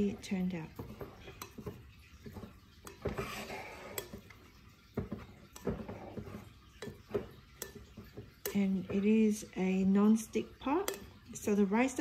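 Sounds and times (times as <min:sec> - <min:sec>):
paddle knocking against pot: 0:00.0 - 0:09.6
rice paddle scraping rice: 0:03.0 - 0:04.2.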